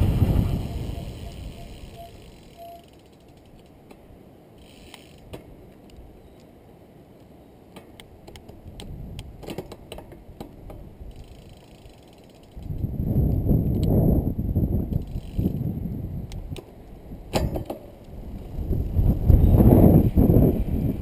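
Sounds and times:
trike drivetrain clicking: 0:00.5 - 0:04.0, 0:04.6 - 0:06.5, 0:07.8 - 0:14.0, 0:14.8 - 0:19.6
freewheel ratcheting: 0:04.6 - 0:05.3, 0:11.1 - 0:12.9.

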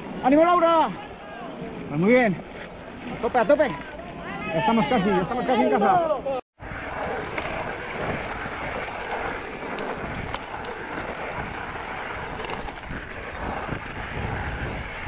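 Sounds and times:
stones and bike rattling: 0:00.0 - 0:05.4, 0:06.6 - 0:15.0
tyre and wind rush: 0:06.6 - 0:15.0.

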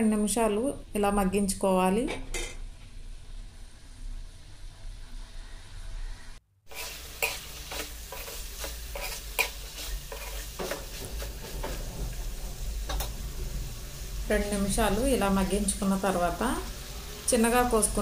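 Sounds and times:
food sizzling: 0:02.6 - 0:18.0
spatula scraping a metal pan: 0:06.7 - 0:13.2.

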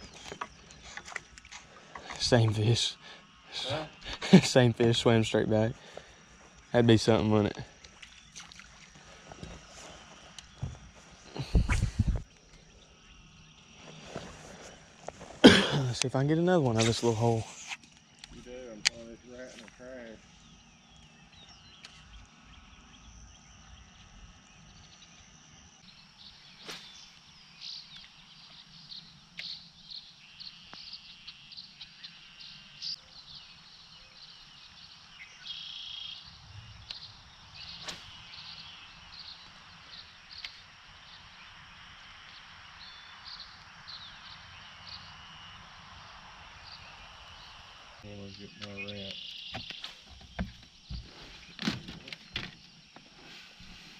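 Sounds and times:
bird chirps and calls: 0:48.2 - 0:51.6.

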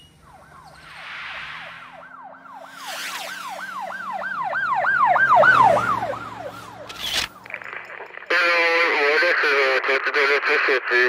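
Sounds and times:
police siren yelping: 0:00.0 - 0:08.8.

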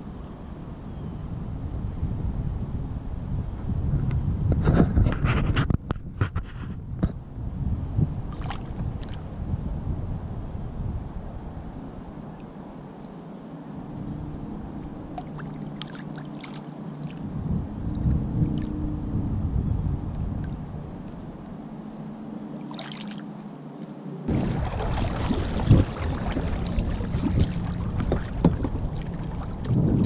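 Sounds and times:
wind rumbling on microphone: 0:00.0 - 0:23.2, 0:24.3 - 0:30.0
fish splashing at surface: 0:24.3 - 0:29.6.

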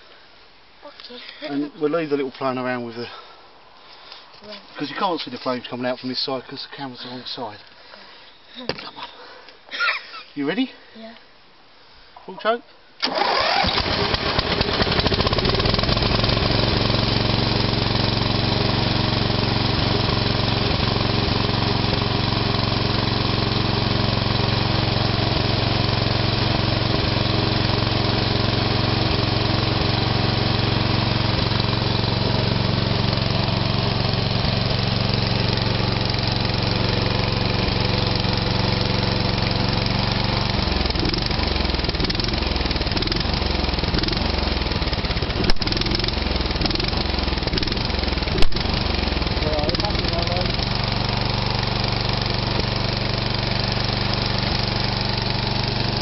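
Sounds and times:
petrol mower engine running: 0:13.0 - 0:56.0.

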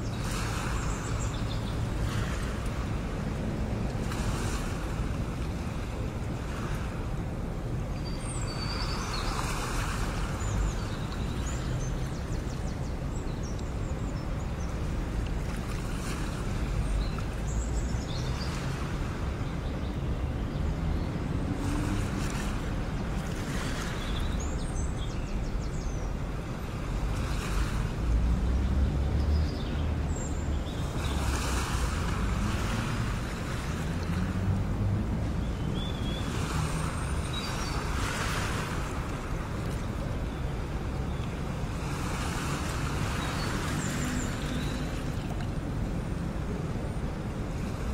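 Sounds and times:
low wind rumble: 0:00.0 - 0:47.9
sea waves washing in: 0:00.0 - 0:47.9.

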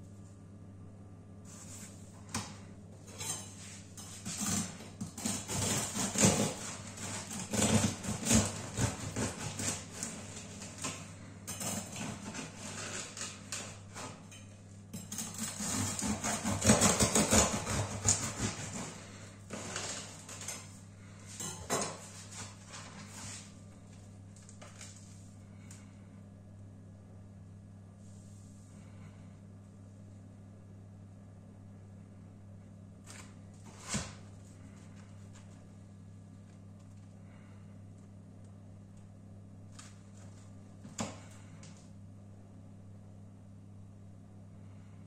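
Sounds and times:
bread knife sawing through crust: 0:04.0 - 0:11.0, 0:11.8 - 0:14.2, 0:15.2 - 0:20.4.

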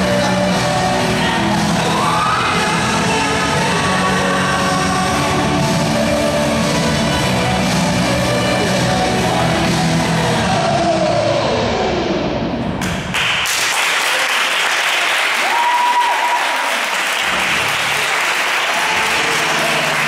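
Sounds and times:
group applauding: 0:12.8 - 0:20.0.

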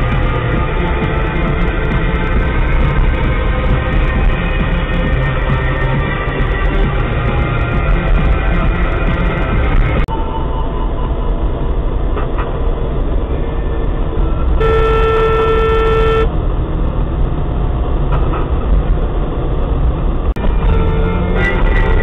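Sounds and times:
road and engine noise: 0:00.0 - 0:22.0
car horn: 0:14.4 - 0:16.3, 0:20.4 - 0:22.0.

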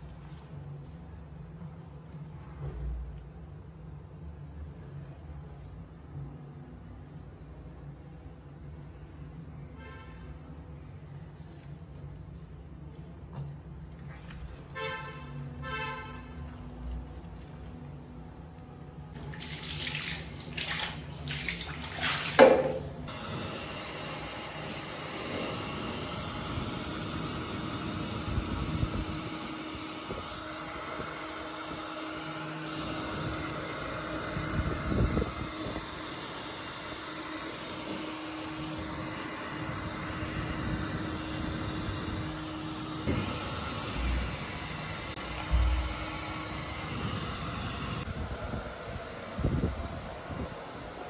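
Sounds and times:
water splashes and knocks: 0:19.4 - 0:23.0
tap running into a sink: 0:22.1 - 0:22.9.

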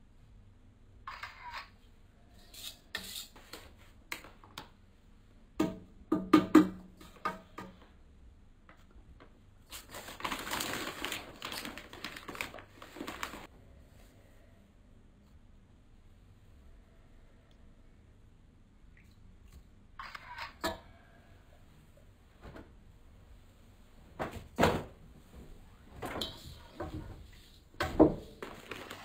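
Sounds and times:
paper flour bag rustling: 0:09.6 - 0:13.5, 0:28.1 - 0:29.0.

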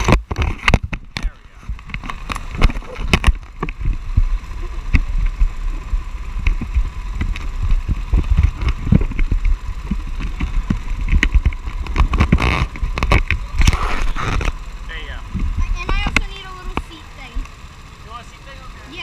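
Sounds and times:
microphone rubbing on shirt: 0:00.0 - 0:14.6.

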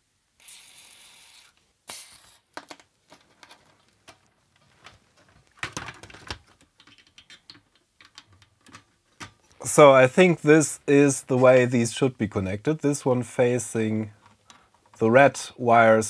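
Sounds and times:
aerosol spray hissing: 0:00.4 - 0:02.3
metal and plastic clicks and knocks: 0:05.6 - 0:09.4.

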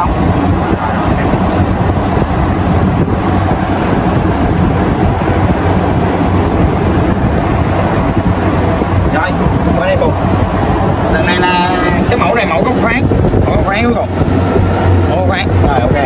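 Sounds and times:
cooling fan running: 0:00.0 - 0:16.0.

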